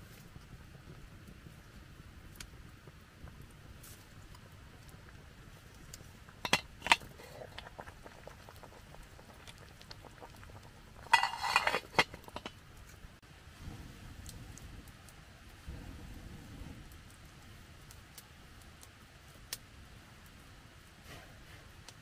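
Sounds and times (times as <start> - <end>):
cooking utensils clicking: 6.5 - 7.1, 11.0 - 12.5
utensils ringing clatter: 11.1 - 12.4.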